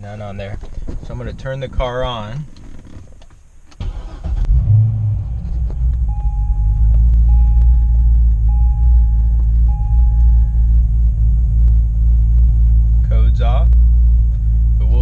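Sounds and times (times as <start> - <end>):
car engine starting and idling: 0.7 - 15.0
car warning chime: 6.1 - 10.8.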